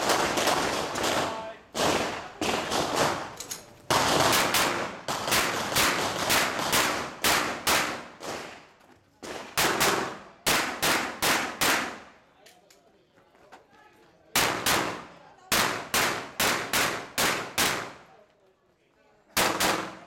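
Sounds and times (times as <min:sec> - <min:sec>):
rapid pistol fire: 0:03.9 - 0:08.6, 0:09.3 - 0:12.0, 0:19.4 - 0:20.0.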